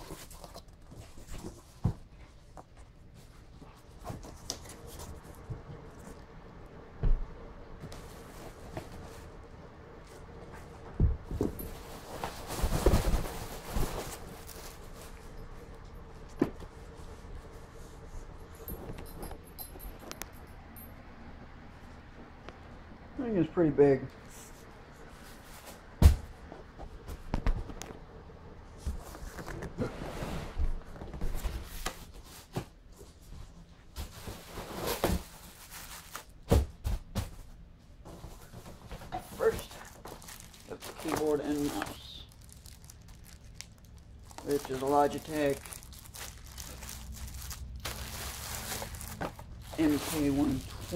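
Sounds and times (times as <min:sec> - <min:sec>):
packing rustling and scraping: 0:00.0 - 0:06.2, 0:11.3 - 0:15.8, 0:28.9 - 0:36.4, 0:38.1 - 0:50.9.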